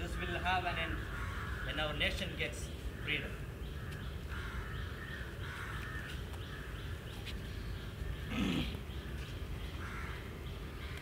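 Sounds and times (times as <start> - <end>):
crows cawing: 0.0 - 7.1, 9.7 - 11.0.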